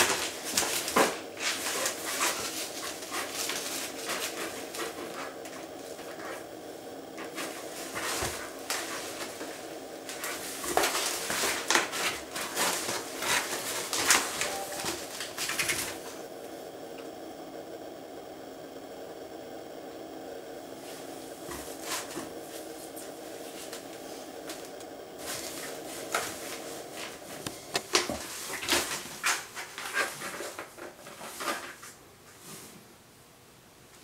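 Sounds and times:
cat scratching cardboard box: 0.0s - 6.4s, 7.2s - 16.1s.

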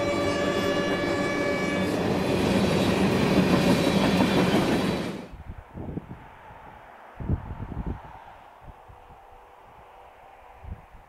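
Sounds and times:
locomotive air horn: 0.0s - 2.0s
faint wind: 0.0s - 11.0s.

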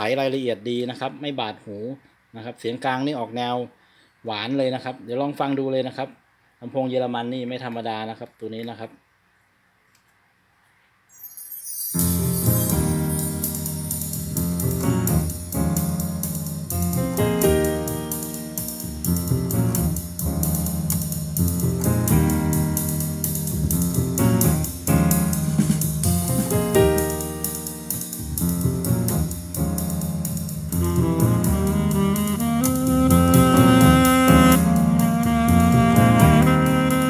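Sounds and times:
piano over a drum beat: 11.9s - 37.0s.

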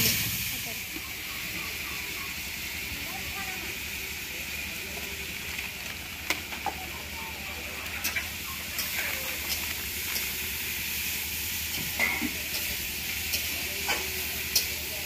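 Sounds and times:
food sizzling in a hot pan: 0.0s - 4.8s, 8.0s - 15.0s.

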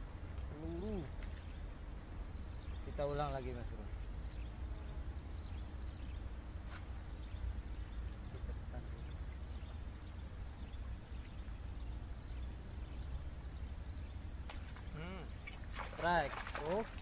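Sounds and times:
high-pitched insect drone: 0.0s - 17.0s
sharp click: 6.7s - 7.0s.

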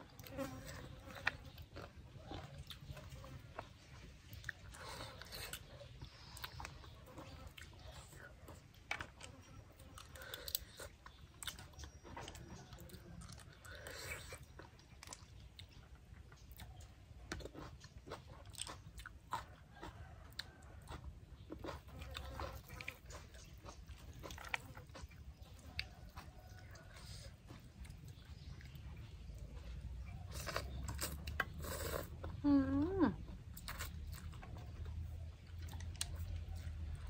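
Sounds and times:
chewing and crunching food: 0.0s - 37.0s.

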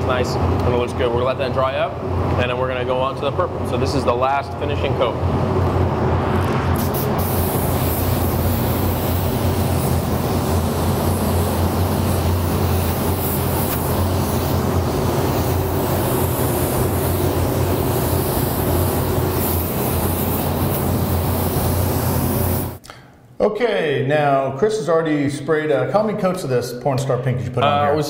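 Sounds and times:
ventilation fan humming: 0.0s - 28.0s
spray gun air hiss: 6.8s - 22.8s.

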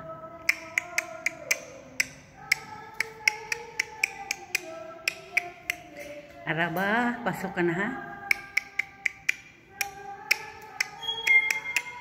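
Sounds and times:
sharp clicks marking a beat: 0.4s - 5.9s, 8.3s - 12.0s.

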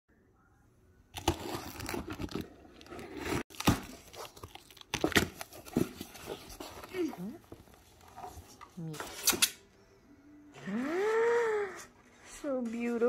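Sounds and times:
packing tape ripping: 1.2s - 7.1s.

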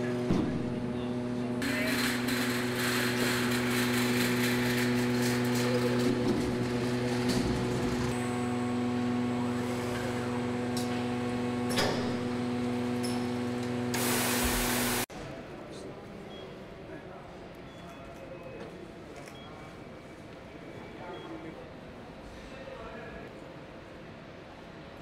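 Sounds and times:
machinery humming: 0.0s - 15.1s
hiss: 14.0s - 15.0s.

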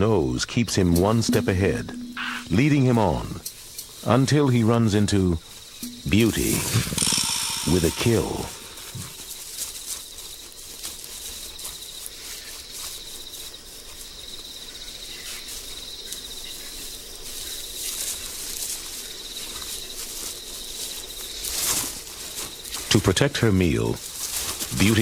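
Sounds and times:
insects chirring: 0.0s - 25.0s.

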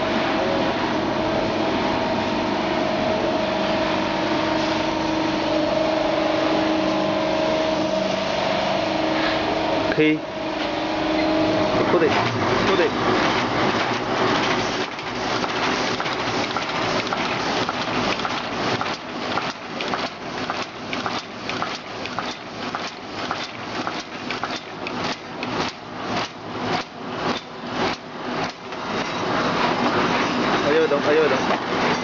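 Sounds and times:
packing machine clatter: 11.9s - 32.0s
sharp regular clacks: 13.2s - 29.1s.

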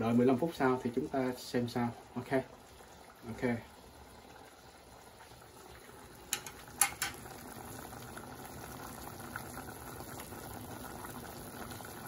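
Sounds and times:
pot boiling and bubbling: 0.0s - 12.0s.

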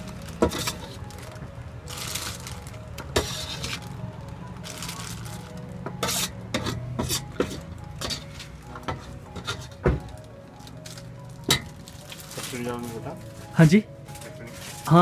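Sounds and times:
foil crinkling: 0.0s - 6.1s, 9.4s - 15.0s
metal ladle scraping a steel pan: 3.1s - 3.8s, 6.0s - 9.7s.

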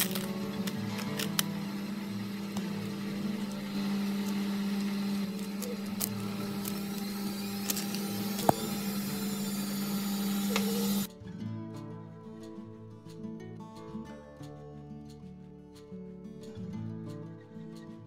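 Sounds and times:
electric motor humming: 0.0s - 11.1s.

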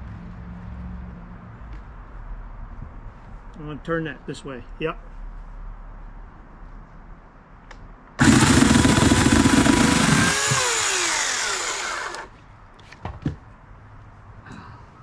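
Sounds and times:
electric chainsaw cutting branch: 8.2s - 12.3s.

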